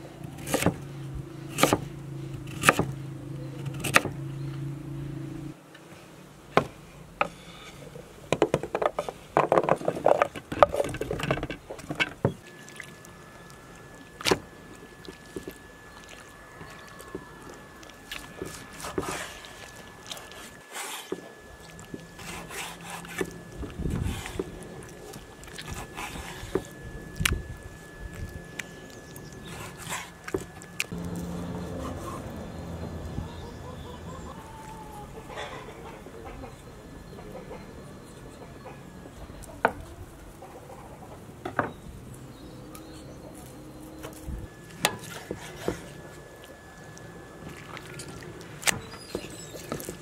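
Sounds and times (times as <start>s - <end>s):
knife chopping on wooden board: 0.4s - 0.8s, 1.5s - 1.9s, 2.5s - 3.0s.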